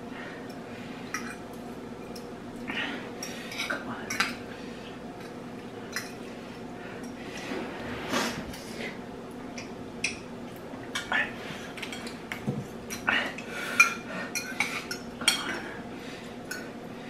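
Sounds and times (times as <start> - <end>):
forks clinking against bowls: 0.5 - 2.3, 3.2 - 4.4, 5.2 - 6.2, 13.8 - 15.7.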